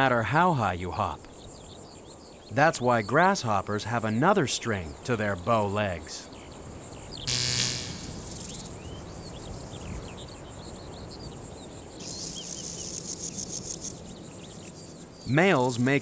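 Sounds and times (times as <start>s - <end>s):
grasshopper rasping song: 7.2s - 9.2s, 12.0s - 16.0s.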